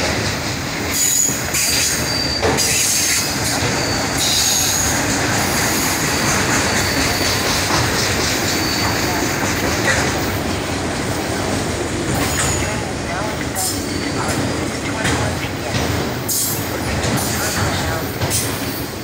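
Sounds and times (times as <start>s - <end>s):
train wheels rumbling on rails: 0.0s - 19.0s
high-pitched wheel squeals: 1.0s - 5.0s, 5.7s - 9.6s.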